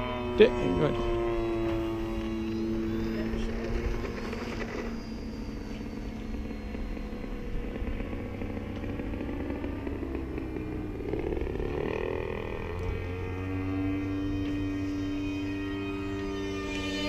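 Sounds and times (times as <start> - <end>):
small aircraft engine running: 0.0 - 17.0.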